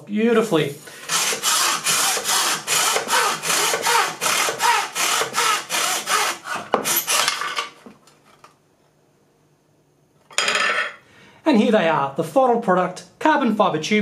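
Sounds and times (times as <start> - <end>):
hacksaw cutting tube: 1.0 - 7.7.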